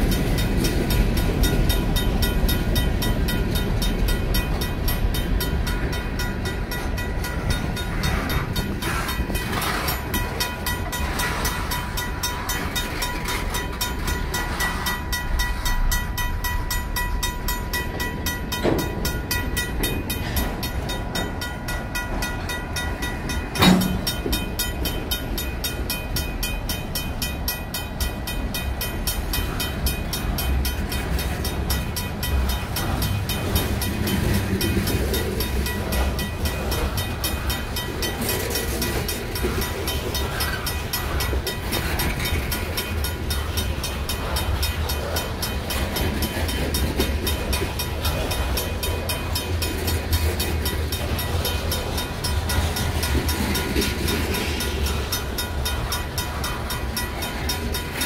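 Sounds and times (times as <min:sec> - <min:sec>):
crossing bell ringing: 0:00.0 - 0:58.0
train wheels rumbling and clacking: 0:00.0 - 0:58.0
sharp metal clank: 0:23.6 - 0:24.1.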